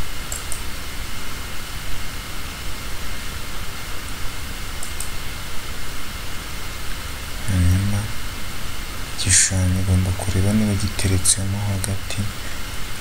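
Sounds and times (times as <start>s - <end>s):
steady background hiss: 0.0s - 13.0s
faint clicks: 0.3s - 0.7s, 4.8s - 5.1s.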